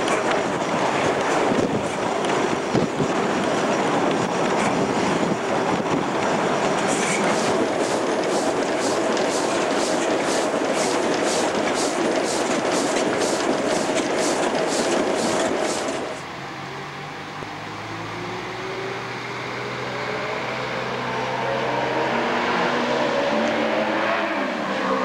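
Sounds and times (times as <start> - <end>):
steam locomotive hissing beat: 6.2 - 16.2.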